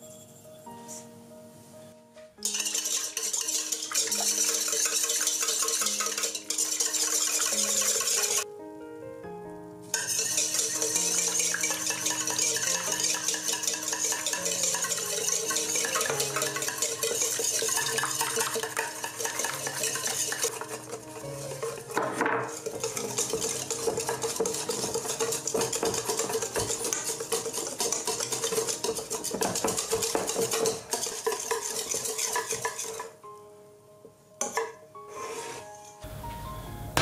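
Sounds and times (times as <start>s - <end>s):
whisk clicking against metal bowl: 2.4s - 8.4s, 10.0s - 33.1s.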